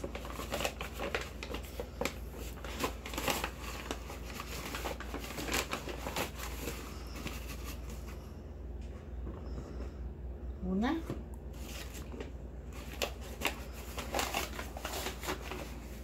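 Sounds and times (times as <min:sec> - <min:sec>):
paper flour bag rustling: 0:00.0 - 0:08.3, 0:11.5 - 0:16.0.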